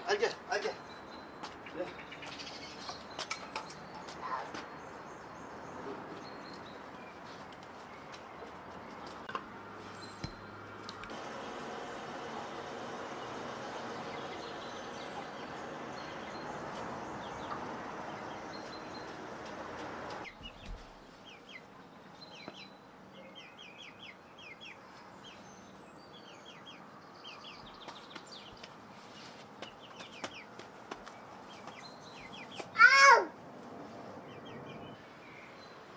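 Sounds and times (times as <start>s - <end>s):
chickens clucking: 11.1s - 20.6s.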